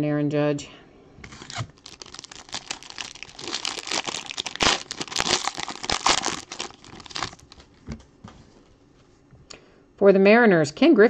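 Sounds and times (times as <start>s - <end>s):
foil wrapper tearing and crinkling: 1.3s - 7.7s.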